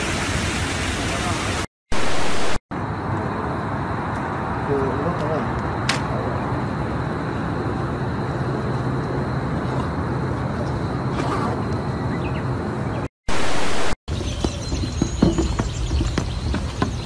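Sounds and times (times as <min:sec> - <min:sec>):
footsteps on metal bridge: 0:14.1 - 0:17.0.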